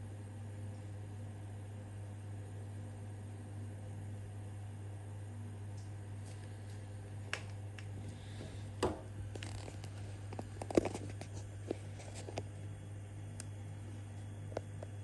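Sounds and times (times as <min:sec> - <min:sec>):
steady low hum: 0:00.0 - 0:15.0
camera handling knocks: 0:08.8 - 0:09.1.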